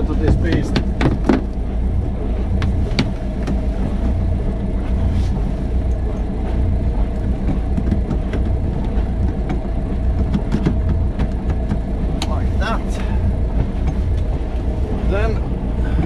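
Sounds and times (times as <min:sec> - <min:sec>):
boat engine idling: 0:00.0 - 0:16.0
cable clicks and knocks: 0:00.2 - 0:01.6, 0:02.6 - 0:04.2, 0:07.2 - 0:12.4, 0:13.6 - 0:14.7.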